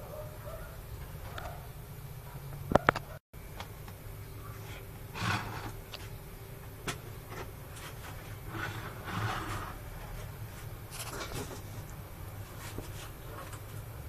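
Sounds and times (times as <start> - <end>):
steady low hum: 0.0 - 14.0
metal spoon scraping plastic plate: 7.8 - 10.2.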